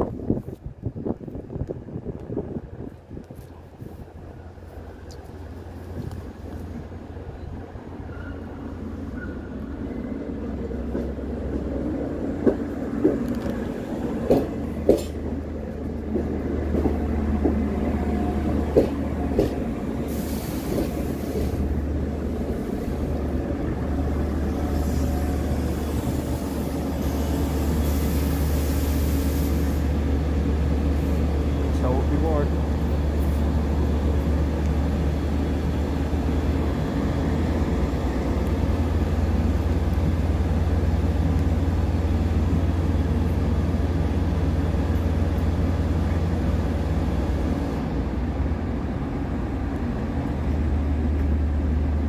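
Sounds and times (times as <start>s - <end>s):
train rumble: 0.0s - 52.0s
wheel clacks over rail joints: 12.4s - 19.8s.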